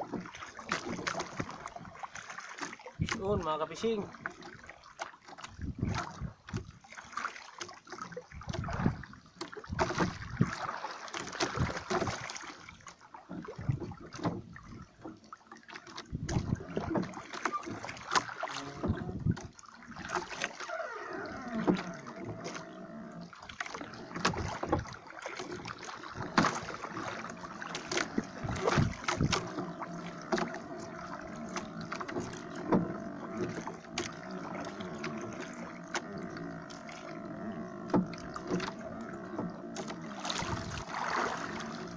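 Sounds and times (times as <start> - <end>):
water lapping against boat hull: 0.0 - 41.9.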